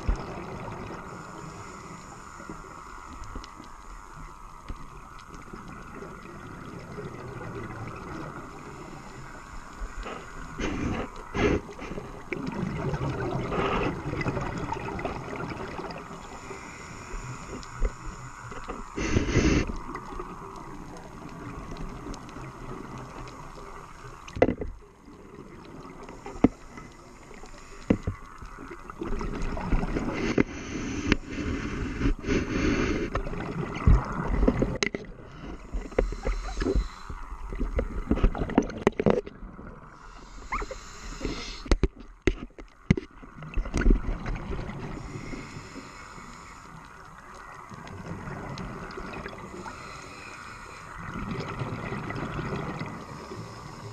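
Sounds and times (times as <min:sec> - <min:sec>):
bubbles rumbling underwater: 0:00.0 - 0:01.1, 0:10.6 - 0:16.3, 0:33.2 - 0:40.8, 0:43.3 - 0:45.1, 0:47.7 - 0:49.7, 0:51.0 - 0:53.2
water hissing: 0:00.0 - 0:24.3, 0:25.4 - 0:38.5, 0:39.9 - 0:42.0, 0:44.8 - 0:53.9
diver breathing through regulator: 0:01.0 - 0:03.3, 0:08.2 - 0:12.4, 0:13.4 - 0:14.3, 0:16.2 - 0:19.8, 0:29.8 - 0:33.3, 0:35.2 - 0:38.4, 0:40.0 - 0:41.9, 0:44.9 - 0:47.1, 0:49.4 - 0:51.1, 0:53.0 - 0:53.9.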